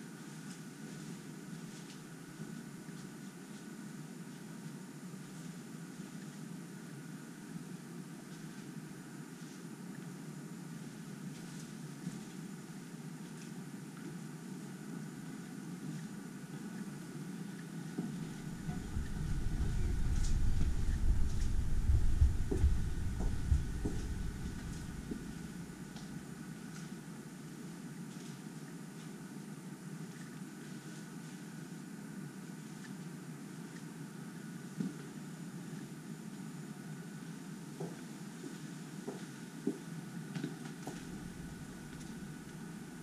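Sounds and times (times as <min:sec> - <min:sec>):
low rumble background noise: 0:00.2 - 0:43.0
faint footstep clicks: 0:18.0 - 0:27.0, 0:37.8 - 0:42.6
low rumble: 0:18.2 - 0:26.2, 0:41.0 - 0:42.5.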